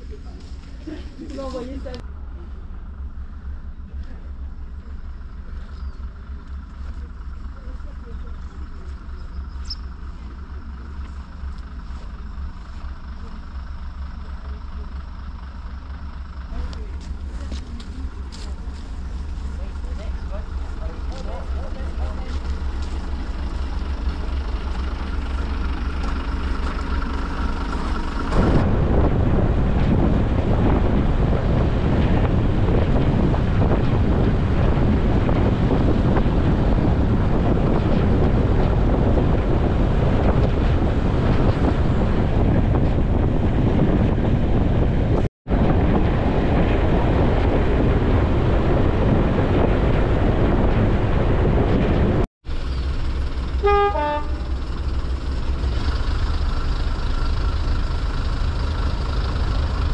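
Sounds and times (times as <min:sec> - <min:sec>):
diesel engine hum: 0:00.0 - 0:59.9
train coaches rumbling on track: 0:00.0 - 0:59.9
wind buffeting microphone: 0:16.6 - 0:59.9.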